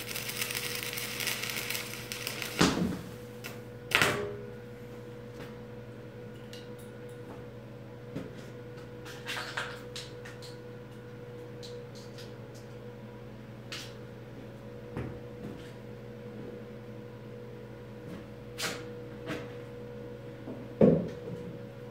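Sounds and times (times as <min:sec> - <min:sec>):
welder humming: 0:00.0 - 0:04.6.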